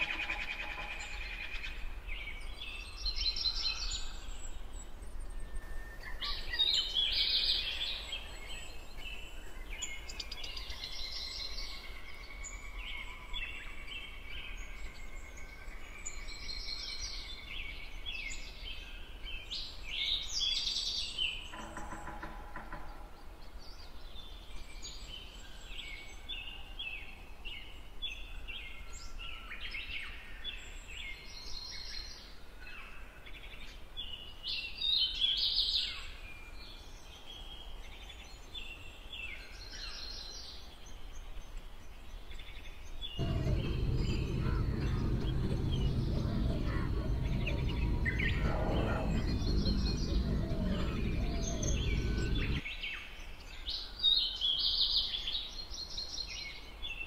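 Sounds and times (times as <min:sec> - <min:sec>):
songbirds chirping: 0:00.0 - 0:29.8, 0:33.5 - 0:57.0
low background rumble: 0:43.2 - 0:52.6
lower longer bird call: 0:43.2 - 0:52.6.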